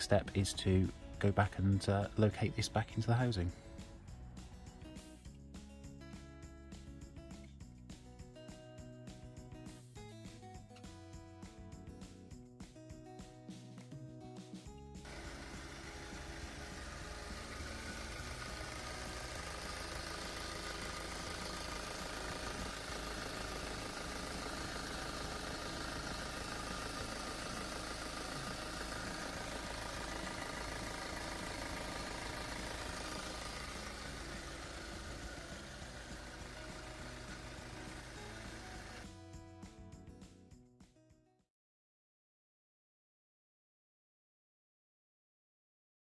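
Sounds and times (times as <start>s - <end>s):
diesel engine idling: 15.1s - 39.0s.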